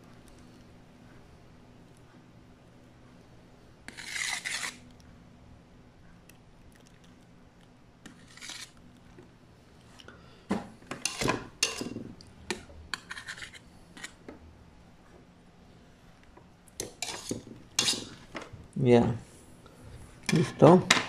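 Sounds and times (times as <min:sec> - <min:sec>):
utensil scraping cream on metal tray: 0:03.9 - 0:04.9, 0:08.0 - 0:08.8, 0:12.9 - 0:14.2, 0:17.0 - 0:18.2.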